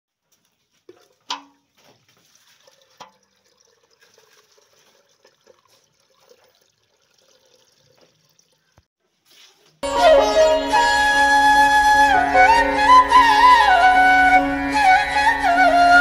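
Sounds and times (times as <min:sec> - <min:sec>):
milk pouring into metal can: 0:00.8 - 0:08.8.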